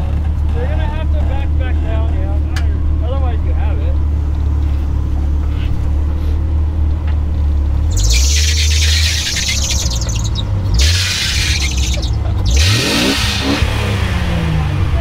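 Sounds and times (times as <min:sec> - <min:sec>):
high-pitched squealing scrapes: 0:07.9 - 0:13.1
engine revving: 0:07.9 - 0:15.0.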